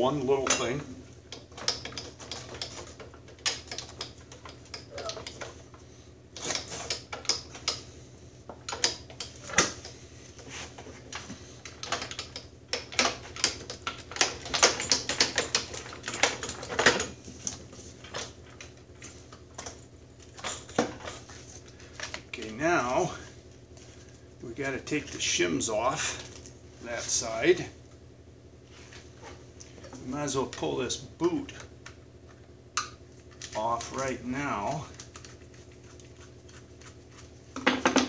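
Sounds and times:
metal parts clicking and clacking: 11.6 - 17.1.

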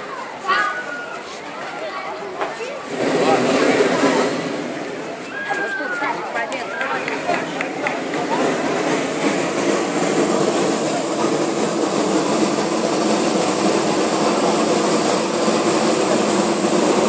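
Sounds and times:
propane burner roaring: 2.6 - 17.0.

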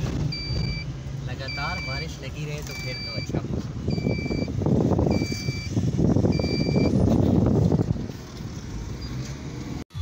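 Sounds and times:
car engine and road rumble: 0.0 - 10.0
high electronic beep: 0.3 - 2.1, 2.7 - 4.5, 5.1 - 5.7, 6.3 - 7.0.

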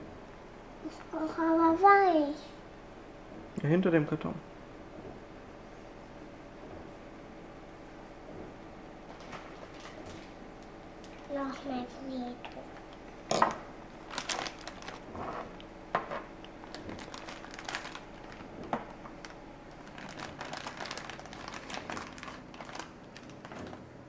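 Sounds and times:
plastic bag crinkling: 9.1 - 11.6, 12.4 - 24.0.

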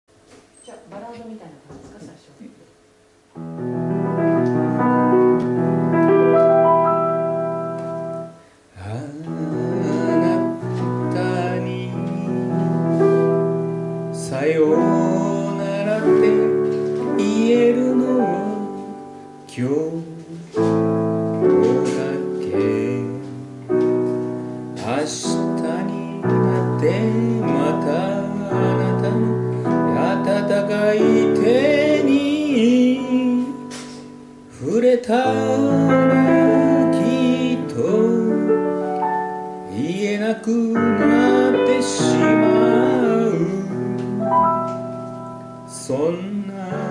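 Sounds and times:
slow ballad piano: 3.4 - 46.9
person singing into microphone: 8.8 - 13.4, 14.1 - 23.9, 24.8 - 38.8, 39.6 - 44.8, 45.7 - 46.9.

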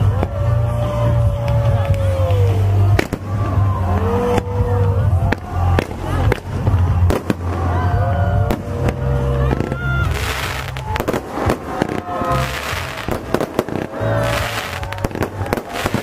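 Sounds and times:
fireworks bangs: 0.0 - 16.0
fireworks crackling: 0.0 - 16.0
fireworks whistling: 5.3 - 16.0.

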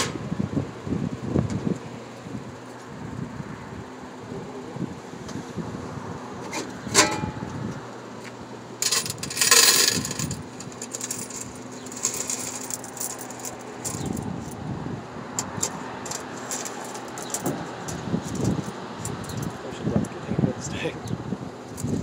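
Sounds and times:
coins clinking: 8.8 - 14.6, 16.1 - 17.5
metal coin box scraping out: 8.8 - 14.6, 15.6 - 17.6.

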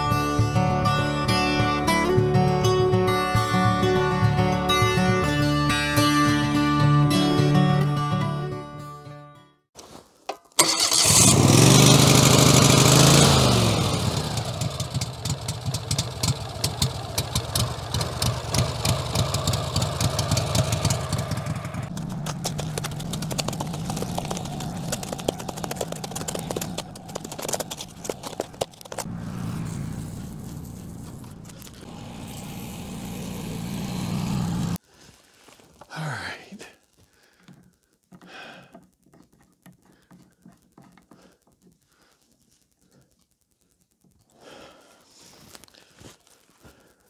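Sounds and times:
gasoline engine revving and running: 10.6 - 34.8.

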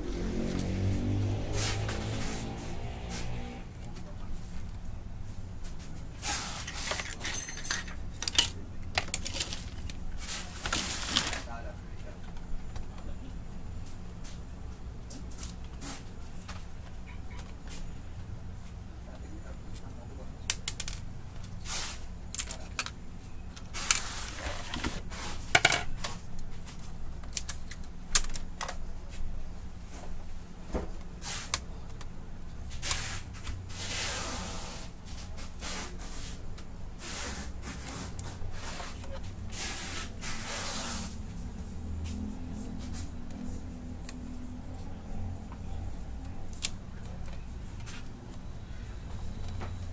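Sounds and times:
scraping on metal and plastic: 5.6 - 11.5, 23.6 - 27.5.

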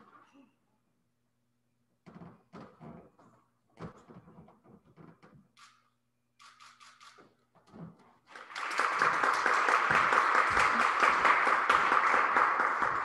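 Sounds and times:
small group applauding: 8.3 - 13.0.

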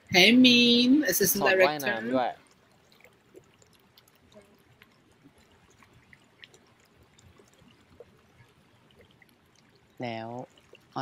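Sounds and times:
faint lapping water: 1.6 - 11.0
small ticks and clicks: 2.2 - 11.0.

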